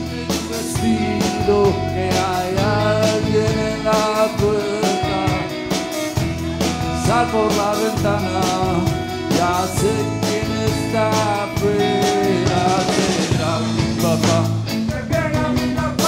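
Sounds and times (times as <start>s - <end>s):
drum kit playing: 0.0s - 16.0s
electric guitars: 0.0s - 16.0s
man singing: 0.0s - 16.0s.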